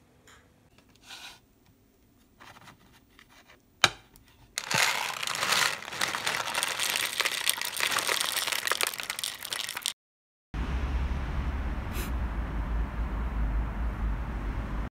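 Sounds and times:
kibble rattling into container: 4.6 - 10.0.

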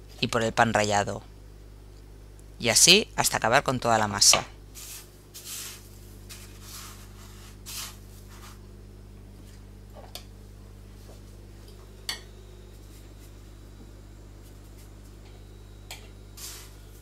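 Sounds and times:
low electrical hum: 0.0 - 17.0
rustling in breadcrumbs: 4.7 - 8.7.

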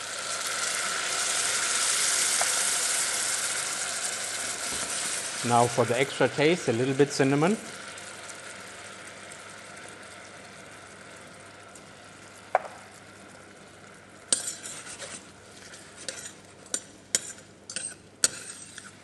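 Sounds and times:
apples sizzling in a pan: 0.0 - 19.0
tap on pan: 2.4 - 2.6, 12.5 - 12.9
utensil scraping a pan: 14.3 - 19.0.

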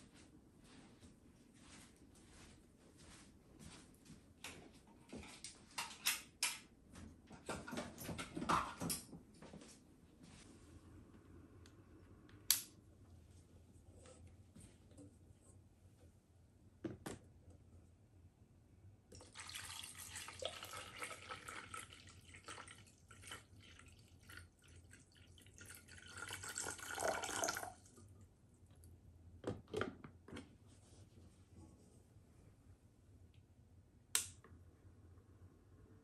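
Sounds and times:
water pouring into tank: 19.1 - 27.9.

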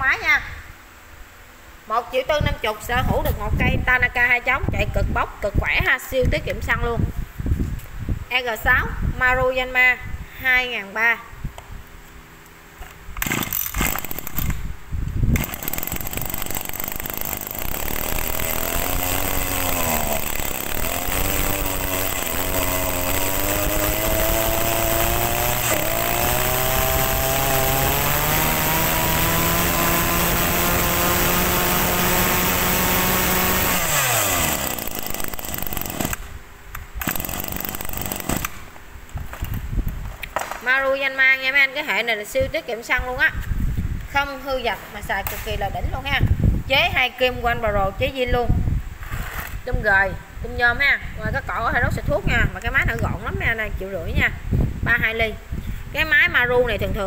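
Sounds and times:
brush cutter engine revving: 13.2 - 36.4, 37.0 - 38.7.

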